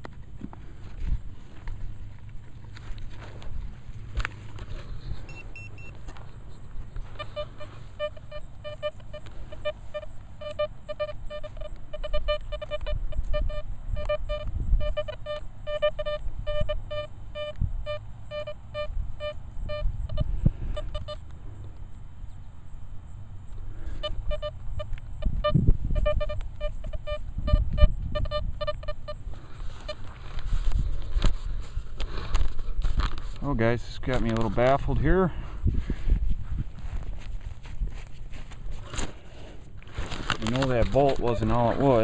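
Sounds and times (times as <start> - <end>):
metal detector short beeps: 5.2 - 6.0, 7.1 - 21.2, 23.9 - 30.1.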